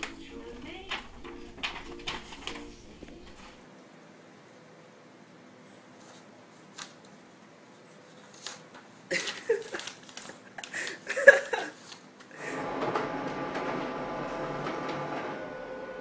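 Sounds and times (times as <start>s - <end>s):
paper rustling and crackling: 0.0s - 3.6s, 6.0s - 7.2s, 7.8s - 13.8s
printer running: 0.0s - 3.6s, 12.4s - 16.0s.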